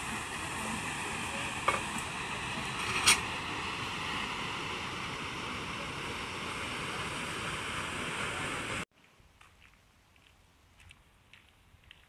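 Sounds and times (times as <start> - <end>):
waterfall rushing: 0.0 - 8.8.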